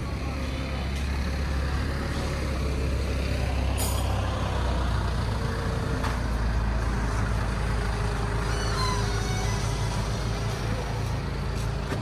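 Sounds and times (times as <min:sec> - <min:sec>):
engine droning: 0:00.0 - 0:12.0.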